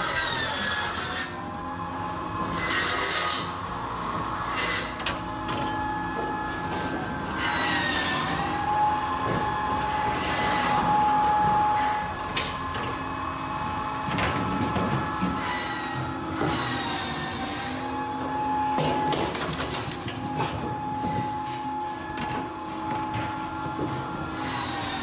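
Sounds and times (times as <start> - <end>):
firewood processor whining: 0.0 - 25.0
cut logs knocking down chute: 5.0 - 25.0.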